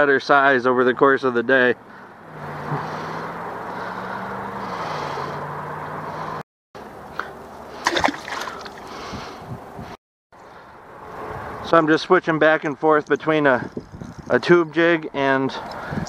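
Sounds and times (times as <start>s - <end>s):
river water gurgling: 6.8s - 9.0s.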